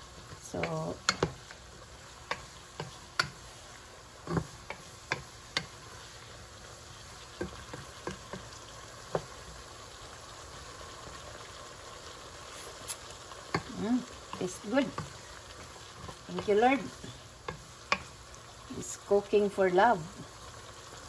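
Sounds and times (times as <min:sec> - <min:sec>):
wooden spatula stirring beans: 0:00.0 - 0:19.2
vegetables sizzling and bubbling: 0:00.0 - 0:21.0
spatula knocking against pot: 0:01.0 - 0:01.4, 0:04.2 - 0:05.8, 0:07.4 - 0:08.5, 0:13.5 - 0:13.7.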